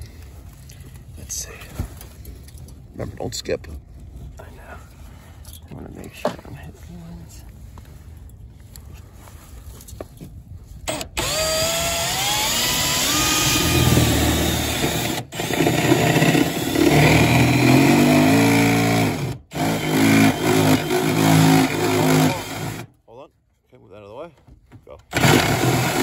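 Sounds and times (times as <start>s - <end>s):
cordless drill cutting sheet metal: 10.9s - 22.9s, 25.1s - 26.0s.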